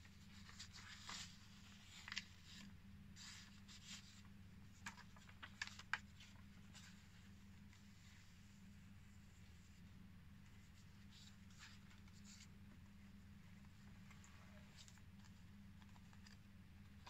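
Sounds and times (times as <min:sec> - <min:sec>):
faint low hum: 0:00.0 - 0:17.0
paper rustling and tapping: 0:00.3 - 0:07.0, 0:14.0 - 0:17.0.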